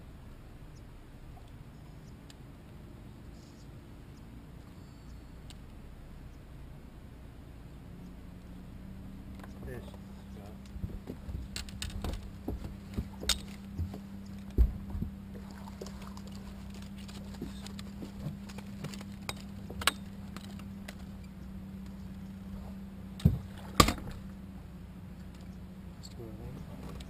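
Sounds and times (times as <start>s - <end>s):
steady low hum: 0.0s - 27.0s
knocks and thumps on boat deck: 10.6s - 16.0s, 17.2s - 20.1s, 22.6s - 24.2s.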